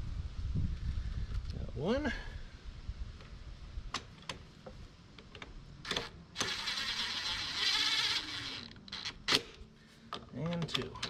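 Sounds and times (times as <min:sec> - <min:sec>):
cordless impact driver running: 0:05.9 - 0:09.2
small handling clicks: 0:08.6 - 0:11.0.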